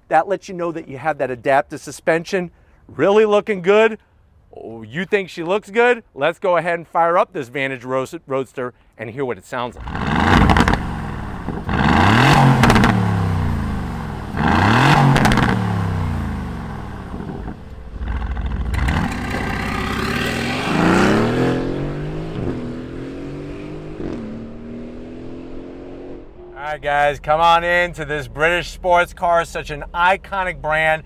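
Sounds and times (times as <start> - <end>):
car accelerating with upshifts: 9.8 - 26.6
car engine starting and revving: 9.8 - 28.8.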